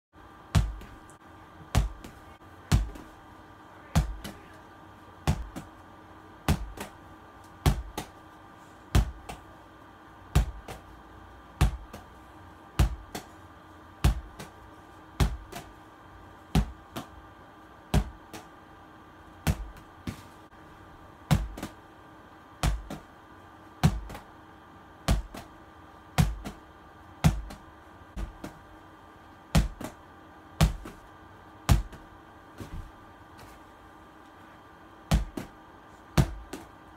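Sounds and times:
ball thudding against wall: 0:21.3 - 0:21.8, 0:35.1 - 0:35.5.

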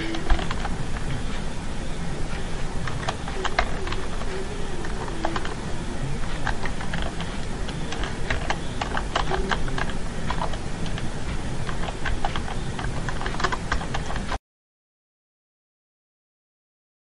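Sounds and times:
keyboard keys clicking: 0:00.0 - 0:01.1, 0:02.8 - 0:14.4
low background hum: 0:00.0 - 0:14.4.

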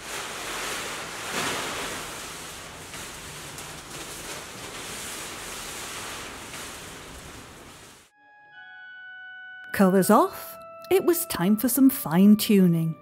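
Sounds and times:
plastic sheeting rustling: 0:00.0 - 0:08.1.

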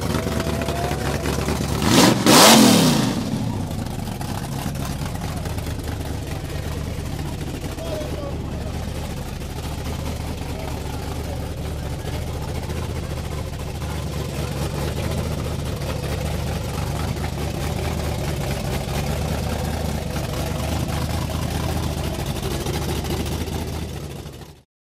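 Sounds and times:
supercharged engine idling: 0:00.0 - 0:24.6.

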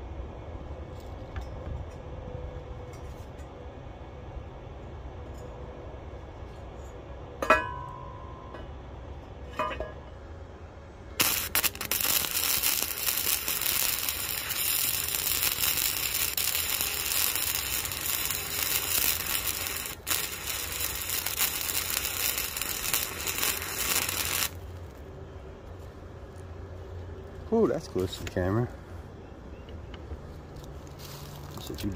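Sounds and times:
welding arc crackling: 0:11.2 - 0:25.0.

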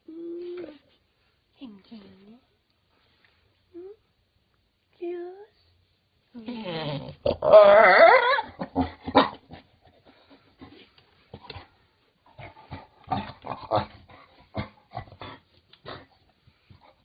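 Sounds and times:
dog crying: 0:07.4 - 0:09.3.

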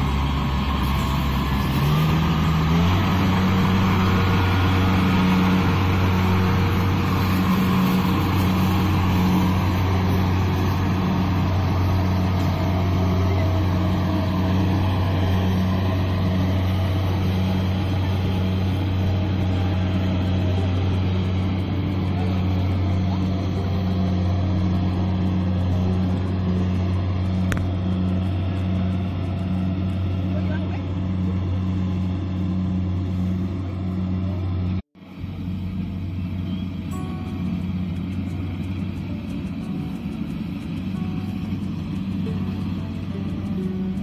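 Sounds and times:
combine harvester diesel engine: 0:00.0 - 0:44.0
whirring threshing gear: 0:35.6 - 0:44.0.

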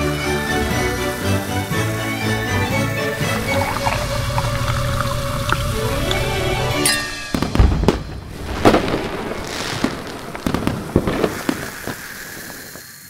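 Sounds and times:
music: 0:00.0 - 0:07.8
falling firework whistle: 0:06.9 - 0:13.0
firework bangs and crackles: 0:07.1 - 0:13.0.

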